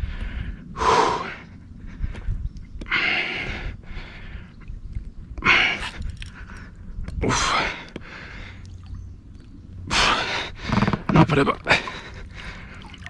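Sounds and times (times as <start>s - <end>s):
man breathing hard: 0.0s - 4.7s, 5.4s - 8.7s, 11.7s - 13.0s.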